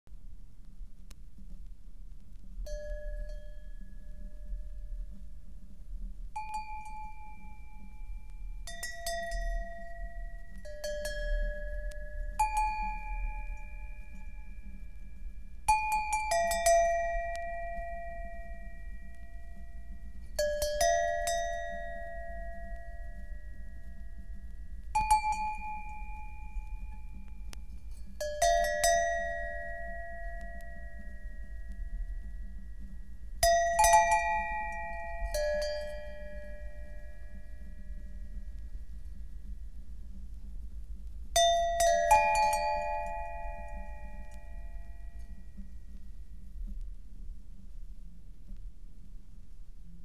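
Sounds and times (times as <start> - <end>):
steady low hum: 0.1 - 50.0
bell-like struck notes: 6.4 - 38.6, 41.4 - 45.9.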